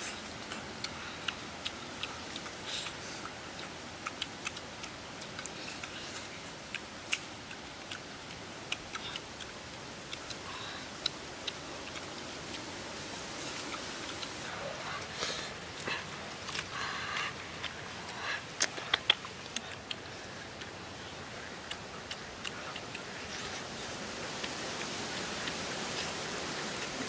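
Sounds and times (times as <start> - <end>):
sticky clicks of fruit being pulled: 0.0 - 10.4, 15.0 - 23.7
outdoor background hiss: 0.0 - 27.0.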